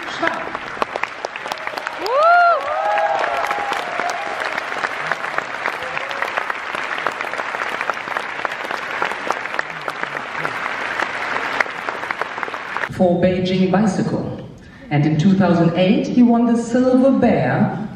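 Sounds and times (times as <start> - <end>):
large audience applauding: 0.0 - 12.9.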